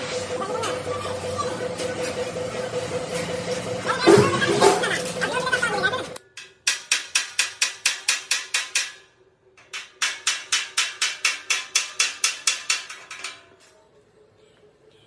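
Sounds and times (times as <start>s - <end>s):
hammer striking sheet metal: 6.3s - 13.5s.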